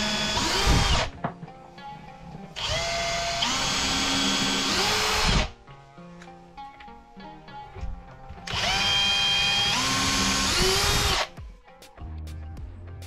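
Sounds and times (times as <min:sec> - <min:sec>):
cordless drill drilling into wood: 0:00.0 - 0:01.1, 0:02.6 - 0:05.5, 0:08.5 - 0:11.3.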